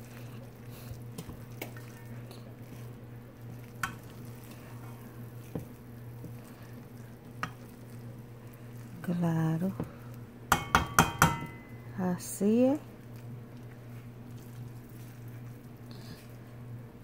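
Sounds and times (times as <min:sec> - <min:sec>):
steady low hum: 0:00.0 - 0:17.0
spoon stirring rice in a pan: 0:02.6 - 0:09.0.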